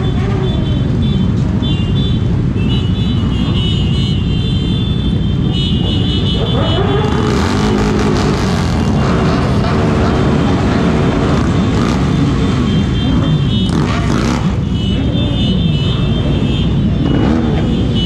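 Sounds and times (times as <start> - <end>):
motorcycle engines rumbling: 0.0 - 18.0
motorcycle engine revving: 6.2 - 15.4.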